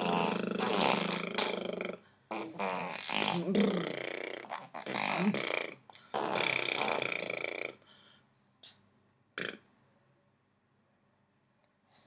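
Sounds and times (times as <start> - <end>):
baby blowing raspberries: 0.0 - 7.8.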